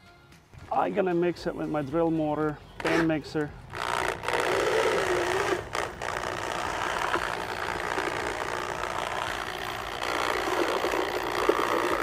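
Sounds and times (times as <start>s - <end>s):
electric drill motor whirring: 3.7s - 12.0s
paddle churning thick paste: 3.8s - 12.0s.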